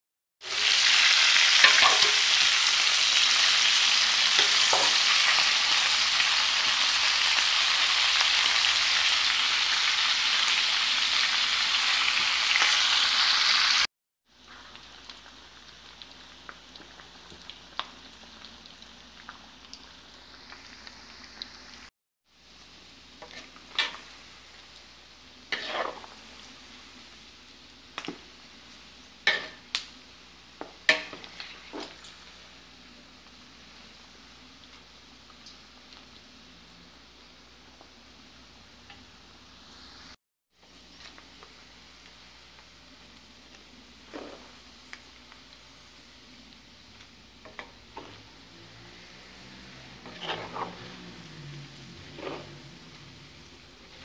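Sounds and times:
fat sizzling in a wok: 0.4s - 54.0s
metal spatula scraping pan: 25.5s - 26.2s, 49.6s - 51.2s, 51.9s - 52.8s.

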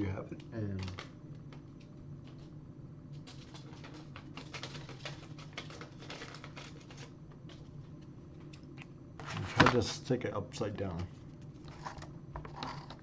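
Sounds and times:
low steady hum: 0.0s - 13.0s
paper and tape clicks and rustles: 0.6s - 2.5s, 3.1s - 7.7s.

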